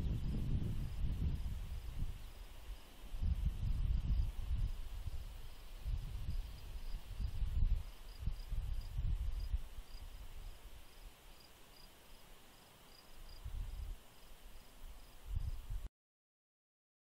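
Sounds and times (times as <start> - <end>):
cricket chirping: 4.0 - 15.6.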